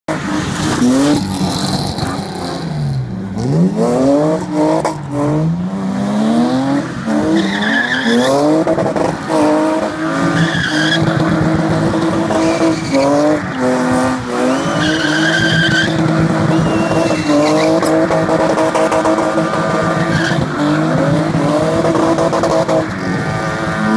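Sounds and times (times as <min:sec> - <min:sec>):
car engines revving: 0:00.1 - 0:23.9
tyres squealing: 0:14.5 - 0:18.0.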